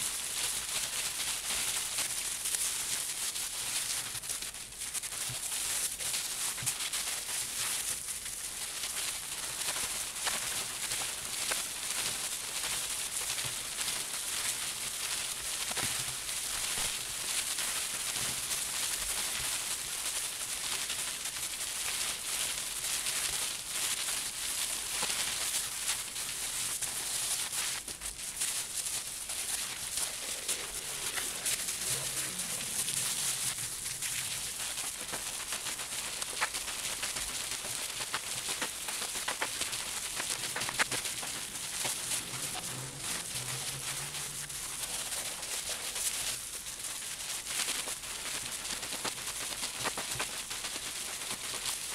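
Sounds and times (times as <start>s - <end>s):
plastic rustling with clicks: 24.1s - 51.9s
wet felt rubbing: 28.6s - 46.0s.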